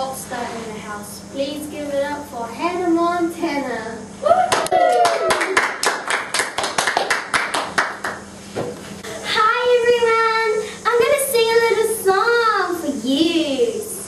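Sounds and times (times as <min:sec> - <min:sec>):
children clapping: 0:04.5 - 0:08.2.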